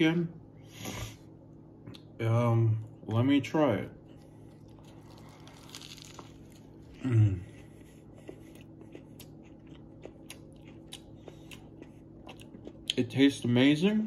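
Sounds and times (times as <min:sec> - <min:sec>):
person chewing food: 0:04.0 - 0:13.2
person humming: 0:07.0 - 0:07.5.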